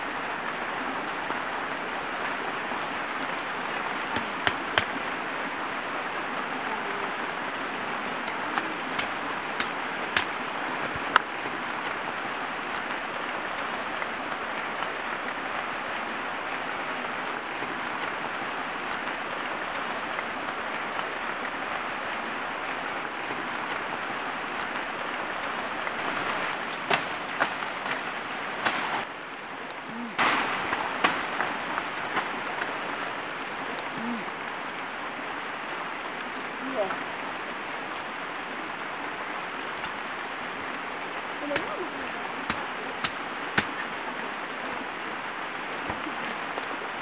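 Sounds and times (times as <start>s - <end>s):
river rushing: 0.0s - 47.0s.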